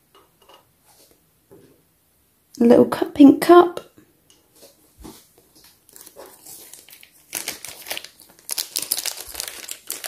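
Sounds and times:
plastic bag crinkling: 0:05.6 - 0:10.0.

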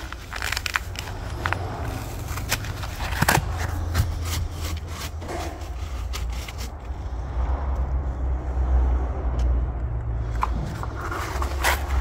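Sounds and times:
paper filter rustling and crackling: 0:00.0 - 0:06.8, 0:10.7 - 0:12.0.

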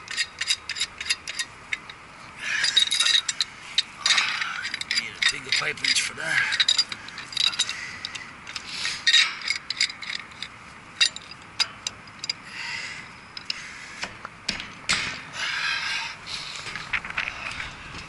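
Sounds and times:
wrench scraping on pipe: 0:00.0 - 0:12.4.

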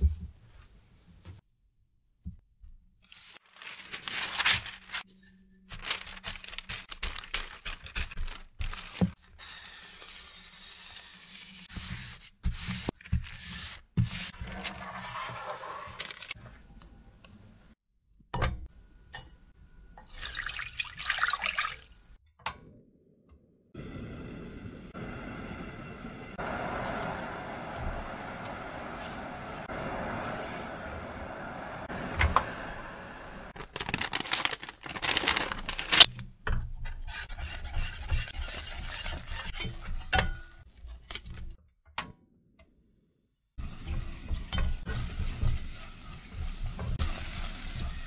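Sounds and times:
paper rustling and crinkling: 0:03.0 - 0:05.1, 0:05.7 - 0:11.7, 0:12.7 - 0:16.6, 0:33.5 - 0:36.1.

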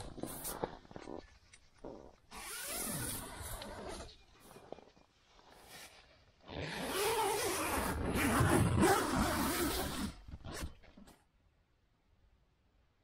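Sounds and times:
tent zipper unzipping: 0:00.0 - 0:04.8, 0:05.5 - 0:11.1.

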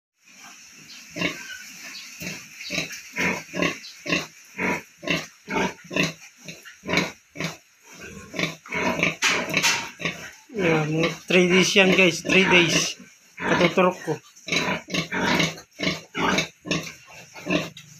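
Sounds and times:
sow grunting: 0:06.9 - 0:17.9.

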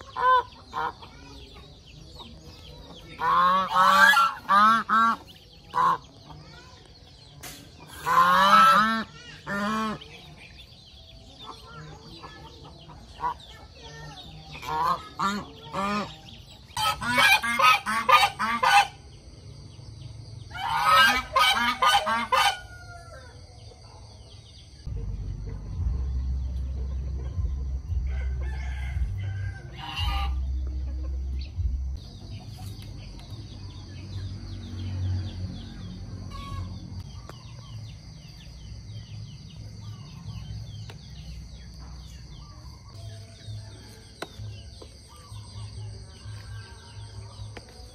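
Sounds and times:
goose honking: 0:03.2 - 0:06.0, 0:08.0 - 0:10.0, 0:14.6 - 0:16.1, 0:16.8 - 0:19.0, 0:20.6 - 0:22.6, 0:29.8 - 0:30.4, 0:36.3 - 0:36.8
low rhythmic thrum: 0:24.9 - 0:29.3, 0:29.9 - 0:32.4.

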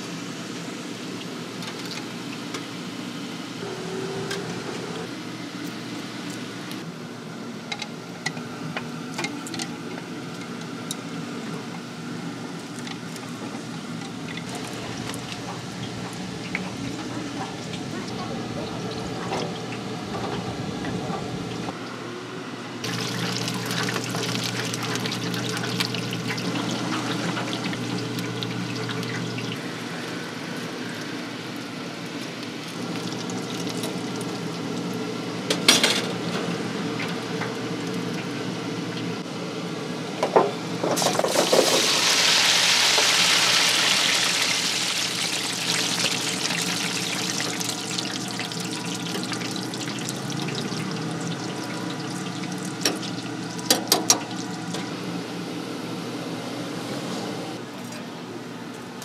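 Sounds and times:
hot oil sizzling and bubbling: 0:00.0 - 0:03.7, 0:12.5 - 0:20.0, 0:22.8 - 0:37.4, 0:40.8 - 0:55.0.

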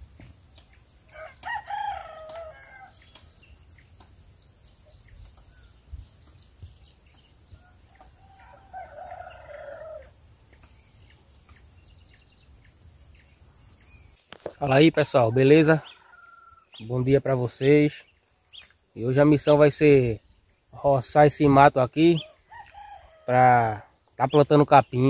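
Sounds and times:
rooster crowing: 0:01.1 - 0:03.2, 0:07.6 - 0:10.2, 0:15.0 - 0:16.8, 0:22.2 - 0:24.0.

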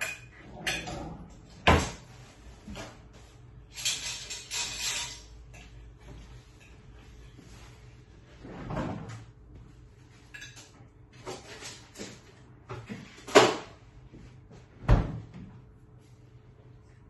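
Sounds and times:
door opening and shutting: 0:00.5 - 0:02.0.

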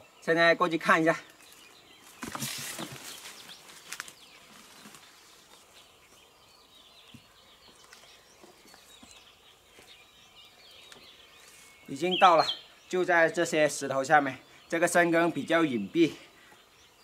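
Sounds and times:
faint bird chirps: 0:00.0 - 0:17.0
footsteps through brush: 0:01.3 - 0:06.3, 0:07.0 - 0:12.4.

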